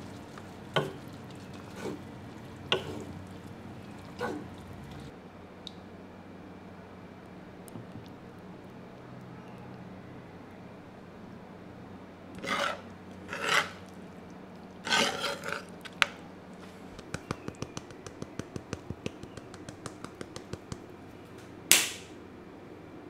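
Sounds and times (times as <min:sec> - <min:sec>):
sauce ladled onto plate: 0:00.1 - 0:05.1
sharp rasp: 0:12.4 - 0:13.8, 0:14.9 - 0:15.6.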